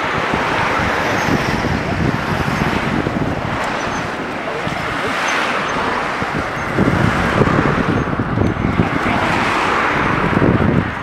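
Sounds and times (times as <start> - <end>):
cars passing on highway: 0.0 - 11.0
low rumbling buffeting microphone: 0.0 - 11.0.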